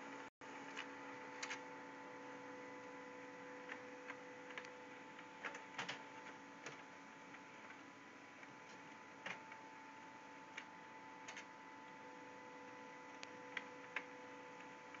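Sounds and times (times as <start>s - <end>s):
printer whine: 0.0s - 15.0s
light printer clicks: 10.5s - 15.0s.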